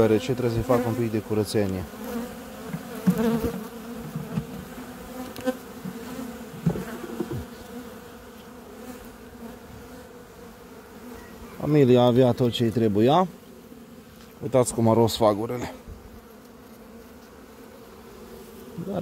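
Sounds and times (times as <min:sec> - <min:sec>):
bees humming: 0:00.0 - 0:19.0
knocks of wooden frames: 0:05.8 - 0:07.4.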